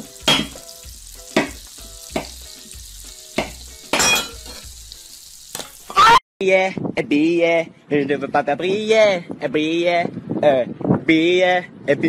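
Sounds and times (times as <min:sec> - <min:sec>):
butter sizzling in wok: 0:00.0 - 0:06.2.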